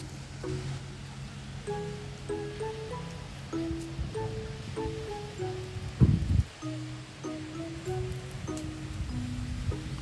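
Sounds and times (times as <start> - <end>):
gentle instrumental melody: 0.0 - 10.0
low bass: 0.0 - 10.0.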